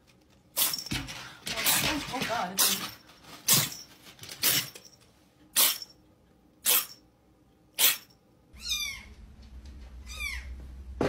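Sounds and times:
kitten sneezing: 0:05.6 - 0:05.8, 0:07.8 - 0:08.1.

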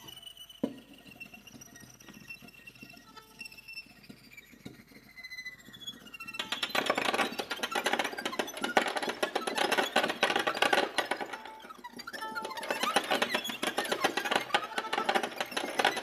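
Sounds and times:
prepared piano rattling and clattering: 0:06.4 - 0:16.0.

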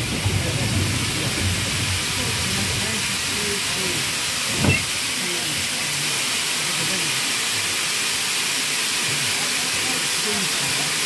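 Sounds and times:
steam hissing: 0:00.0 - 0:11.0.

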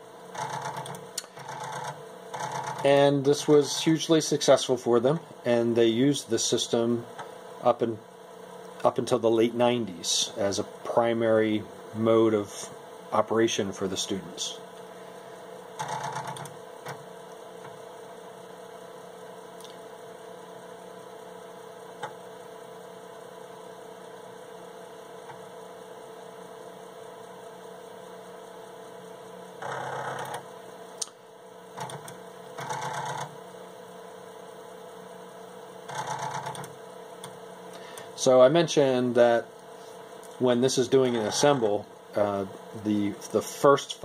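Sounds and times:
computer running hum: 0:00.0 - 0:44.0
floppy disk drive chattering: 0:00.2 - 0:07.9, 0:15.4 - 0:18.1, 0:25.1 - 0:33.5, 0:35.5 - 0:39.4, 0:40.2 - 0:41.8.

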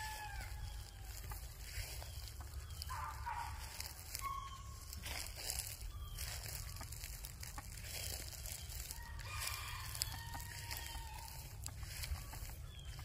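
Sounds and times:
rooster crowing: 0:00.0 - 0:02.0, 0:07.5 - 0:13.0.

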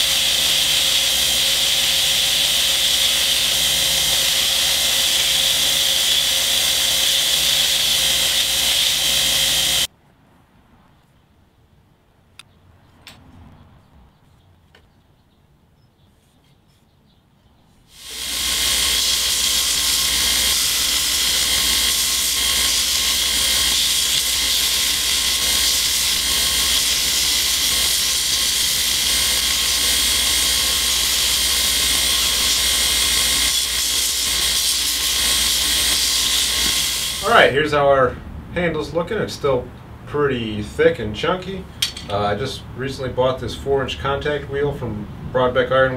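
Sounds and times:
belt grinder sanding wood: 0:00.0 - 0:09.9, 0:17.9 - 0:37.4.

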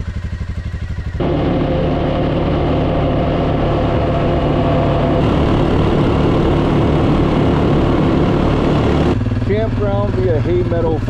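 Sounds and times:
atv engine running: 0:00.0 - 0:11.0.

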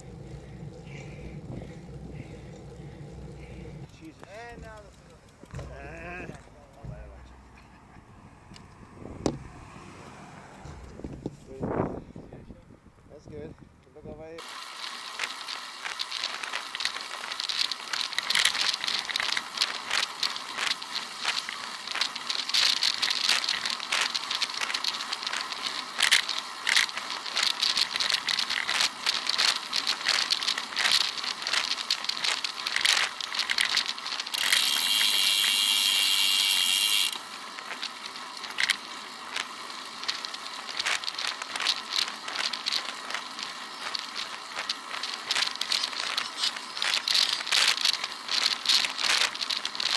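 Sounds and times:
camera rattling from road vibration: 0:00.0 - 0:13.7, 0:14.4 - 0:49.9
wind hiss: 0:08.3 - 0:13.6.

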